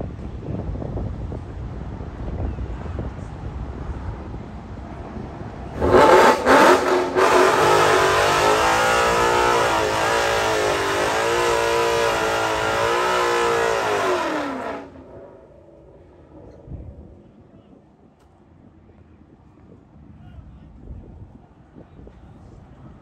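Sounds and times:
car engine revving: 5.7 - 16.6.

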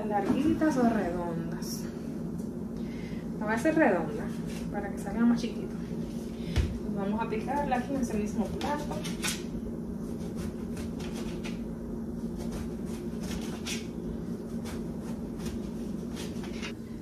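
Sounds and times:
steady low hum: 0.0 - 17.0
knife slicing eggplant: 10.0 - 11.6, 12.3 - 16.7.

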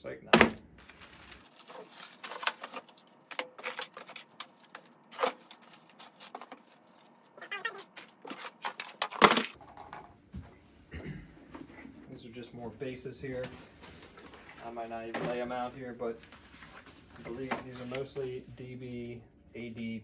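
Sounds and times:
plastic bags crinkling: 0.8 - 9.6.

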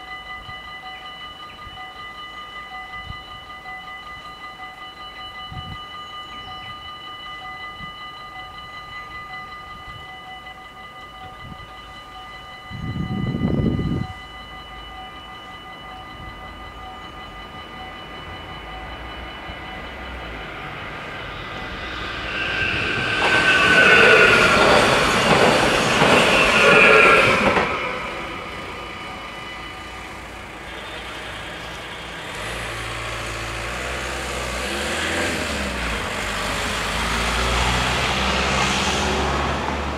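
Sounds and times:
electronic crossing bells ringing: 0.0 - 39.9
train wheels clattering on rails: 17.4 - 39.9.

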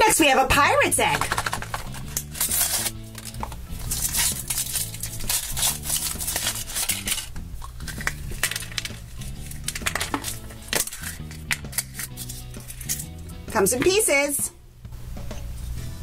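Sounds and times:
background music: 0.0 - 16.0
chocolate shell cracking: 1.2 - 13.1
foil wrapper crinkling: 1.2 - 13.1.

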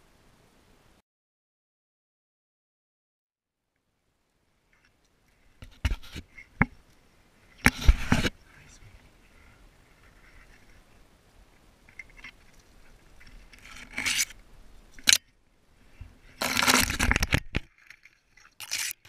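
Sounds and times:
branches rustling and scraping: 4.5 - 19.0.

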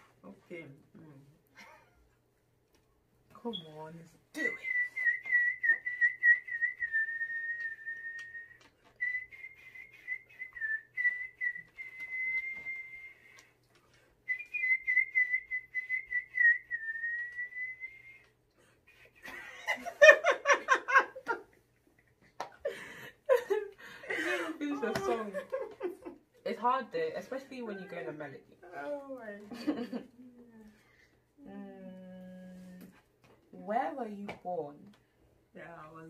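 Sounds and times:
person whistling a tune: 4.4 - 13.5, 14.3 - 18.3.

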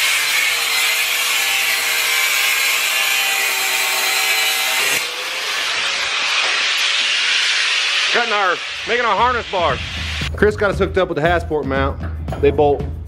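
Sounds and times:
angle grinder grinding steel: 0.0 - 10.3.

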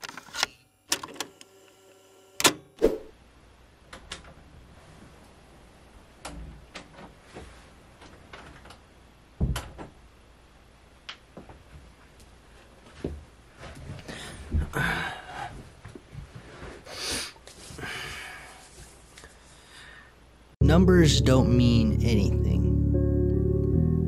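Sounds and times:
knocks and footfalls: 9.4 - 10.0, 11.3 - 14.8, 15.5 - 16.8.

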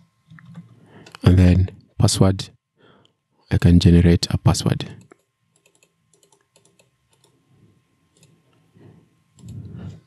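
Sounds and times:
mouse and keyboard clicking: 5.0 - 7.4, 8.1 - 8.4, 9.4 - 9.7.

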